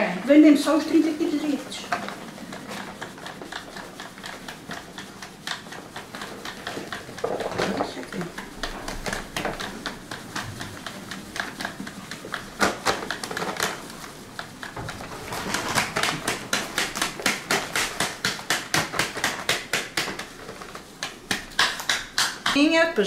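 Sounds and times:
sieve rattling and tapping: 0.6 - 22.8.

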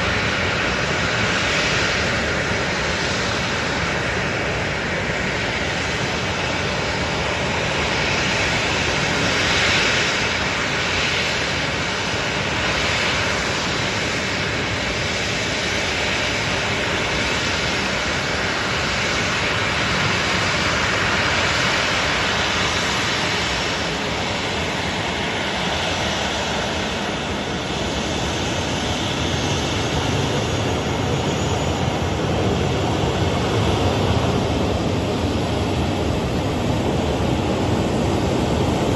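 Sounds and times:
jet engines running: 0.0 - 38.9.

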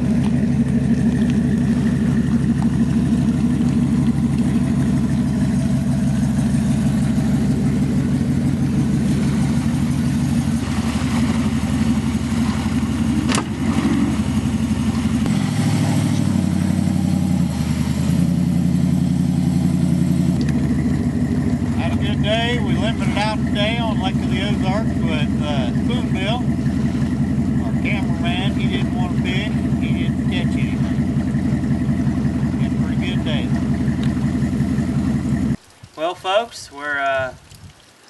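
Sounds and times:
pickup truck engine running: 0.0 - 35.6.

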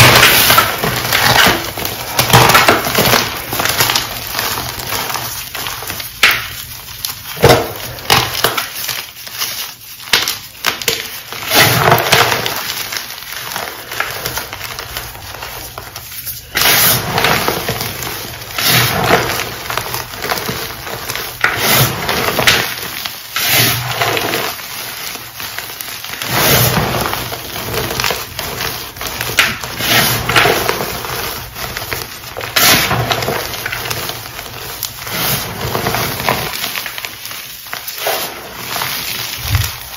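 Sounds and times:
hands crunching powdered chalk: 0.0 - 39.9.

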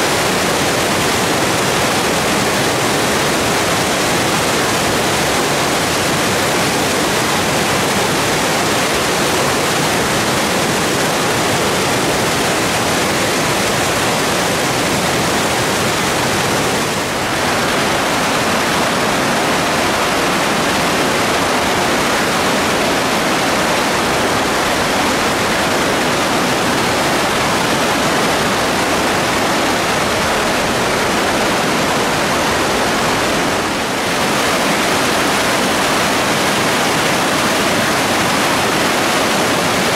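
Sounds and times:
water rushing over boulders: 0.0 - 39.9.

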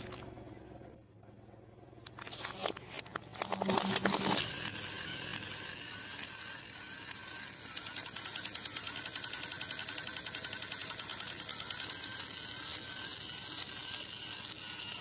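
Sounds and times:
toy machine-gun sound effects: 3.4 - 15.0
toy steady electronic tone: 3.7 - 15.0.

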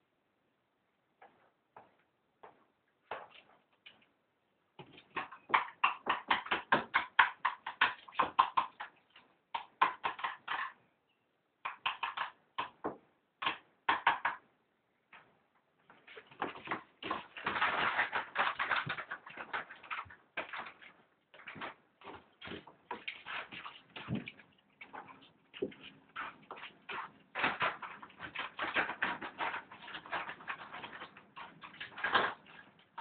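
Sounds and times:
puppy claws tapping on floor: 4.8 - 10.8, 11.6 - 14.4, 15.9 - 33.0.

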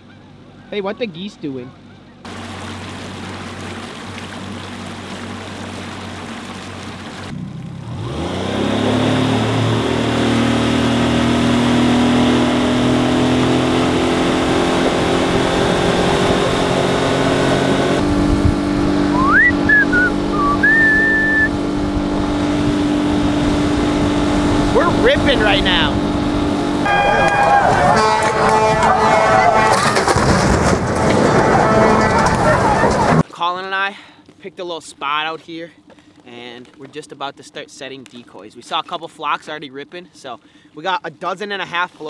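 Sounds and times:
outboard motor running: 1.8 - 29.3, 38.1 - 41.0
water rushing past hull: 2.2 - 33.2.

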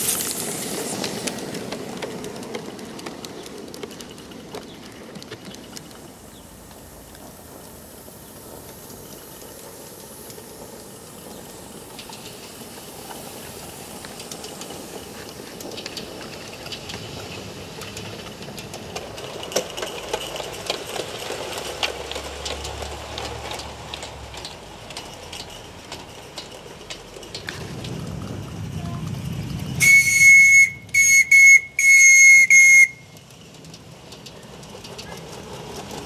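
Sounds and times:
steam hiss: 0.0 - 2.5, 5.6 - 22.1, 29.8 - 33.0
small wheels clicking over rail joints: 0.0 - 36.0.

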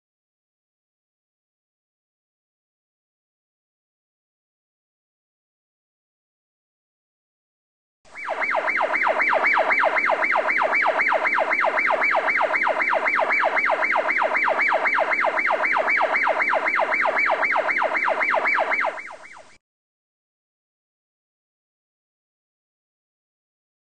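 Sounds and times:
electronic siren wail: 8.1 - 19.6.

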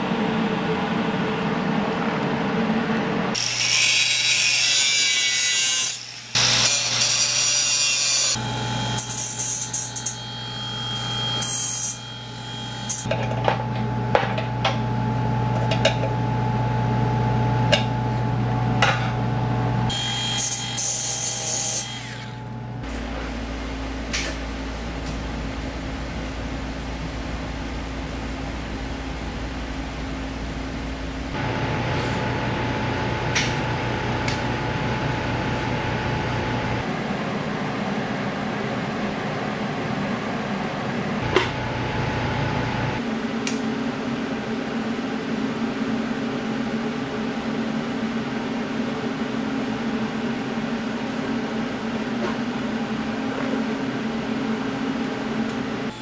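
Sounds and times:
electric buzz of welding: 3.4 - 13.1, 19.9 - 23.2.

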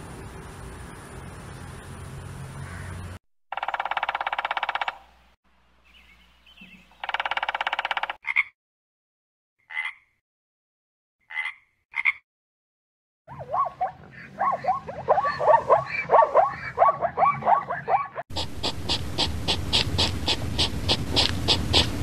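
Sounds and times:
animal trills: 13.3 - 22.0
short animal calls: 13.5 - 22.0.

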